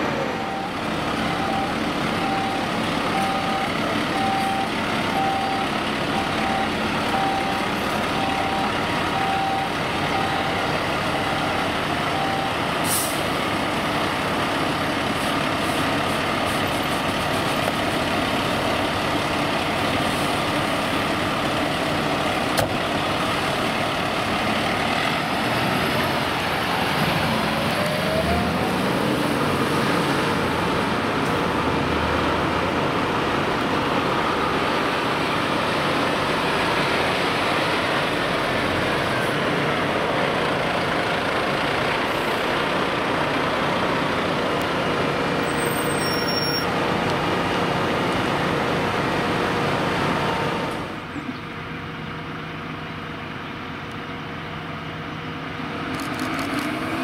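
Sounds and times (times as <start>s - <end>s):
diesel engines running: 0.0s - 57.0s
electronic beeps: 0.4s - 10.6s.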